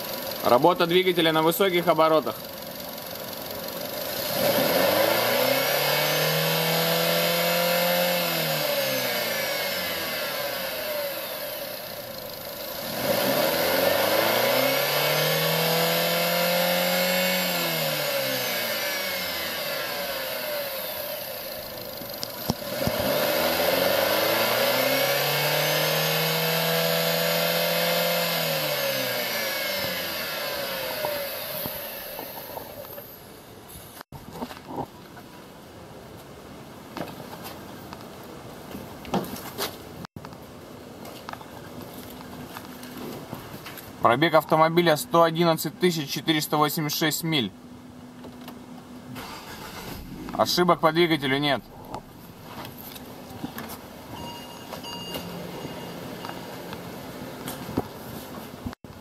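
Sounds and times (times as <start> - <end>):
car engine revving: 2.2 - 33.2, 49.1 - 53.6.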